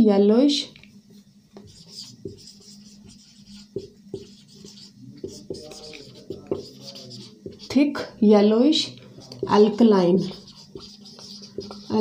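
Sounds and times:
marker pen writing on whiteboard: 1.1 - 8.1, 8.8 - 12.0.

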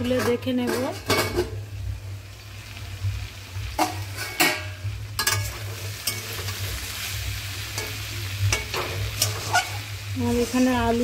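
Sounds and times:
metal lid clanking: 0.0 - 1.6, 3.8 - 6.6, 7.8 - 9.8
metal spatula scraping a pan: 0.0 - 1.6, 3.8 - 11.0
vegetables sizzling in a pan: 0.0 - 11.0.

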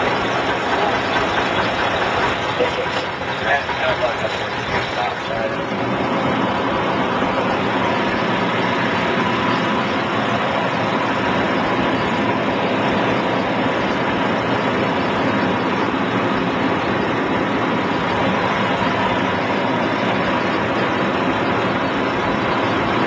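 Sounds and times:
airplane engine and propeller running: 0.0 - 23.0.

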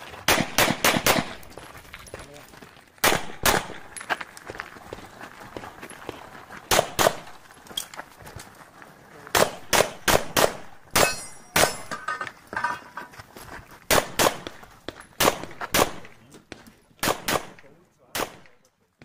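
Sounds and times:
pistol shots: 0.2 - 1.4, 3.0 - 3.9, 6.7 - 7.3, 9.3 - 11.9, 13.9 - 14.6, 15.2 - 16.2, 17.0 - 18.6.

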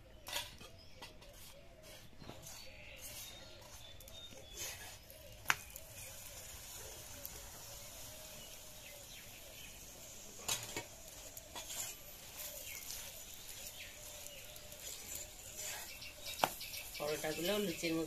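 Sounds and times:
faint sizzling in oil: 0.0 - 18.0
metal spatula scraping and tapping: 0.1 - 5.7, 10.4 - 14.2, 14.8 - 16.9.

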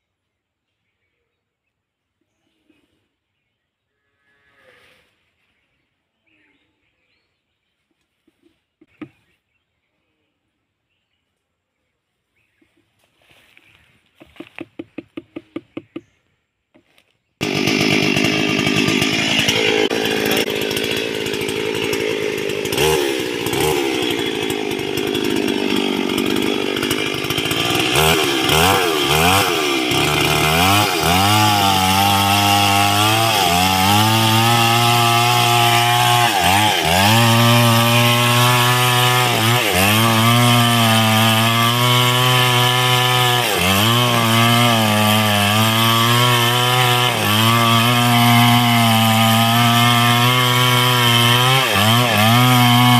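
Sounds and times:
chainsaw cutting wood: 14.2 - 16.1, 16.8 - 52.9.

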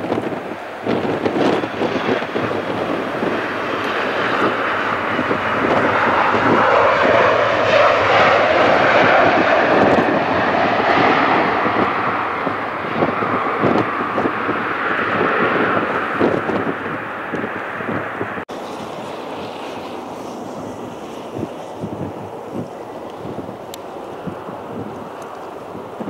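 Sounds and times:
jet engines roaring: 0.0 - 26.0.

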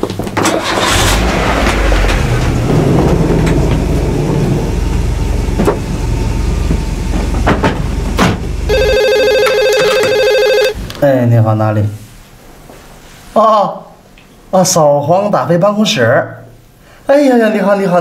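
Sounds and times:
car engine idling: 0.6 - 8.9
desk telephone ringing: 8.7 - 10.8.

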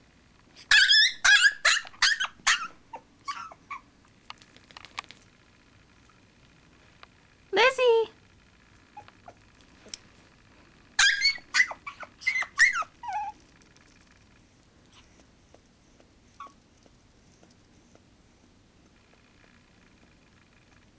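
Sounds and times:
puppy yelping: 0.6 - 3.9, 8.9 - 9.5, 11.0 - 13.5, 14.9 - 16.9.

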